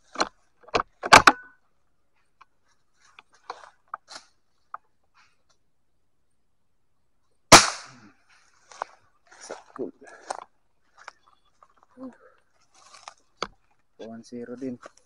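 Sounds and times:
air rifle firing: 7.5s - 8.0s.

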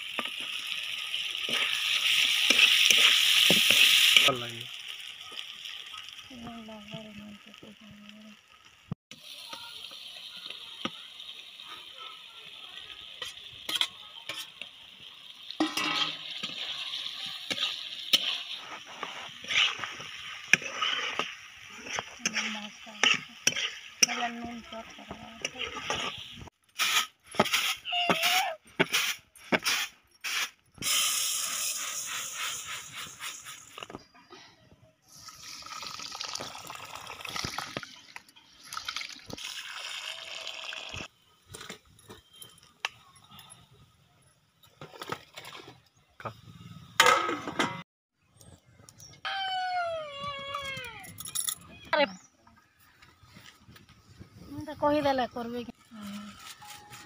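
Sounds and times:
masala sizzling: 0.0s - 34.1s, 35.0s - 47.8s
metal spatula scraping pan: 15.6s - 16.8s, 17.4s - 24.5s
water pouring onto rice: 35.1s - 41.1s.

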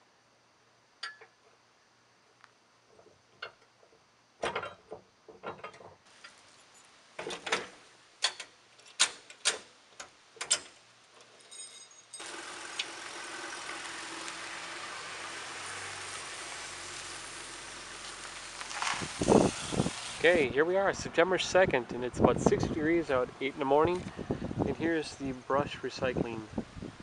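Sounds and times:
steady outdoor hiss: 0.0s - 27.0s
chain clinks: 11.3s - 12.2s.

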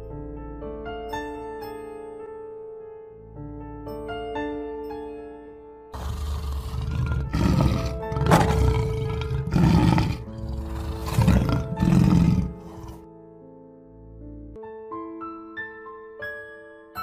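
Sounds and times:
soft background music: 0.0s - 17.0s
lion roaring and growling: 6.0s - 13.0s.

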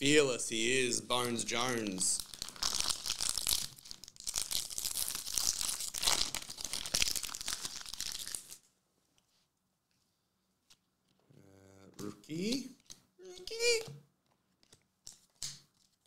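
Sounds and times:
foil wrapper crinkling and tearing: 1.9s - 8.6s.

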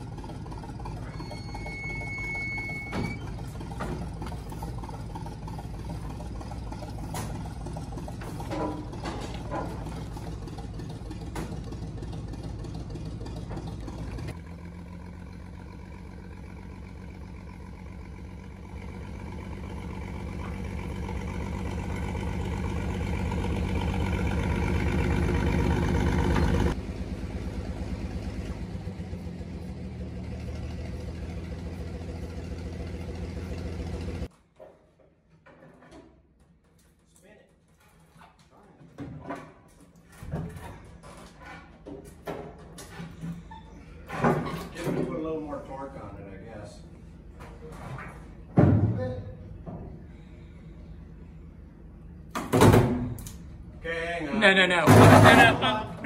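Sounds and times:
crane engine running: 0.0s - 34.3s
high squeal: 1.0s - 3.4s.

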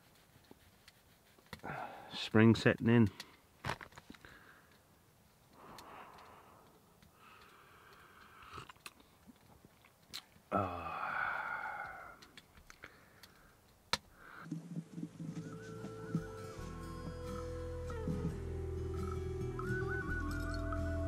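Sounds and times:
man chewing food: 5.6s - 10.4s
music: 15.2s - 21.0s.

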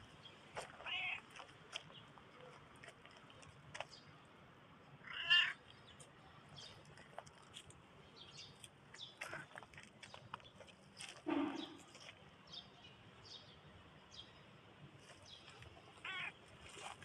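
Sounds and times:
cat meowing: 0.8s - 1.2s, 5.0s - 5.6s, 16.0s - 16.4s.

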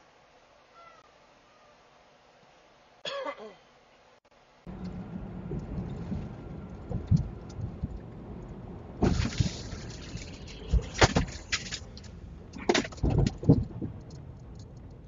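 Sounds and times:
truck cab road rumble: 4.7s - 15.0s.

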